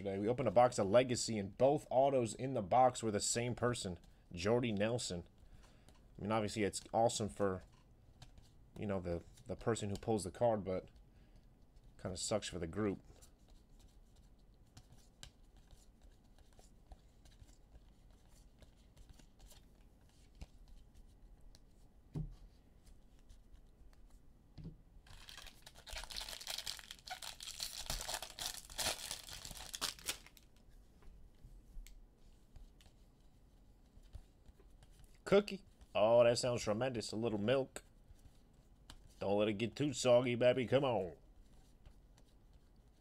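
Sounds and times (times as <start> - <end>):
foil wrapper tearing and crinkling: 25.1 - 30.5.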